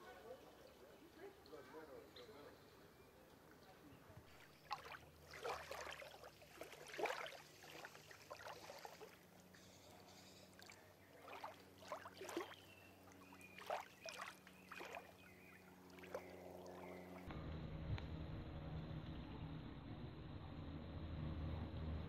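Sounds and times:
steady low hum: 0:01.9 - 0:22.0
water lapping and splashing: 0:04.3 - 0:09.5, 0:10.5 - 0:17.3.

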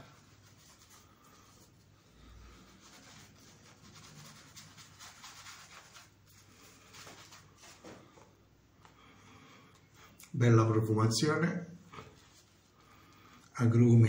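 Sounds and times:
soft shaving brush strokes: 0:00.0 - 0:08.3, 0:11.9 - 0:13.2.

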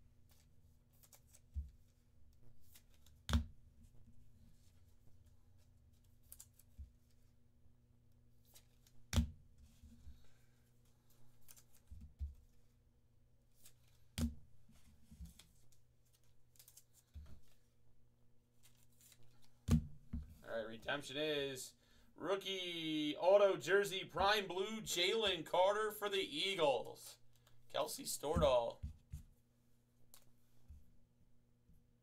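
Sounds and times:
cards sliding and rustling: 0:00.2 - 0:02.0, 0:09.6 - 0:12.7, 0:13.5 - 0:17.7, 0:18.5 - 0:19.7.

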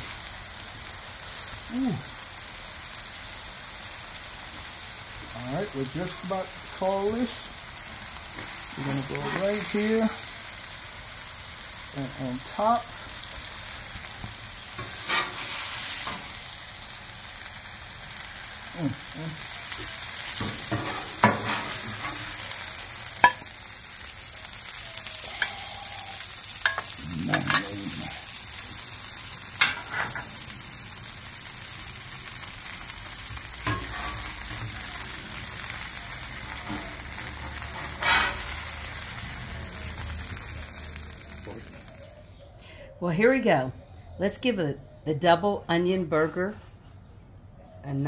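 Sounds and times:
burgers sizzling on griddle: 0:00.0 - 0:42.6
metal spatula scraping: 0:14.8 - 0:16.2, 0:20.4 - 0:22.4, 0:33.6 - 0:34.6, 0:37.6 - 0:38.6.

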